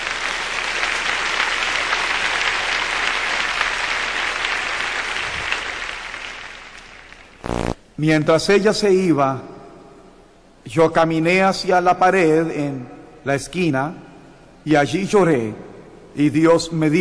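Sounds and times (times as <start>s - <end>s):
crowd applauding: 0.0s - 7.8s.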